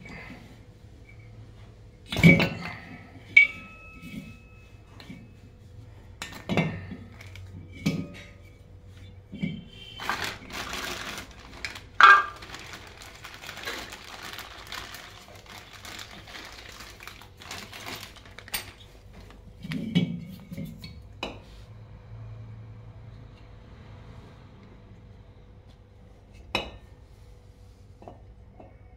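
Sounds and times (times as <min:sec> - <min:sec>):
plastic bag crinkling: 0:07.1 - 0:07.5, 0:09.9 - 0:19.5.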